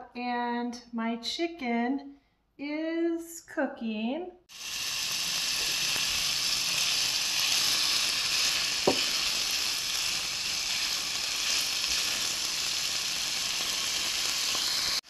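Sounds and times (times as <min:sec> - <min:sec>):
chicken sizzling in a frying pan: 0:04.5 - 0:15.0
sharp knock: 0:08.8 - 0:09.1.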